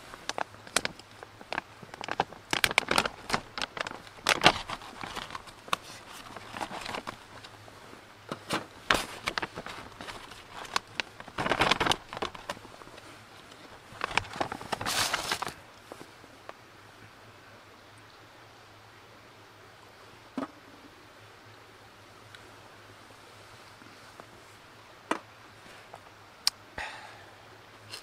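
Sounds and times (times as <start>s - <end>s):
plastic wrappers crinkling: 0.0s - 7.5s, 8.5s - 15.6s.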